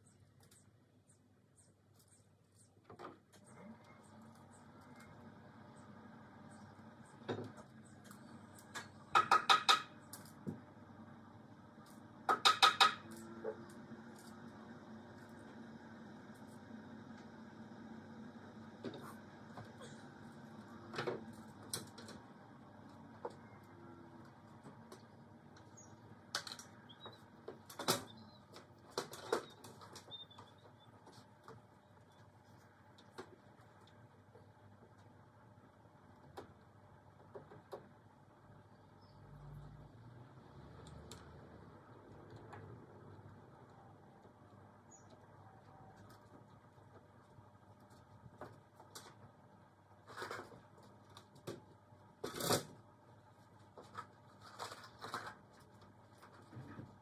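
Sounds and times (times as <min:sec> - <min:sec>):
faint bird chirps: 0:26.8 - 0:27.3, 0:28.0 - 0:28.6, 0:29.2 - 0:31.1.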